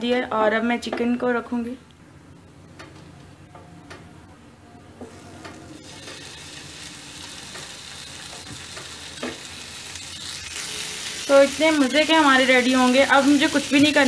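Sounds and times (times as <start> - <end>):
chicken sizzling in grill pan: 5.8 - 14.0.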